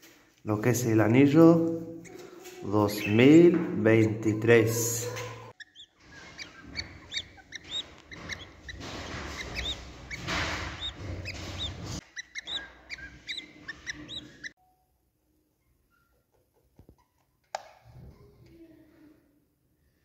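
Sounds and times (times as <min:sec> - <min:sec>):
chicks cheeping: 0:02.0 - 0:14.6.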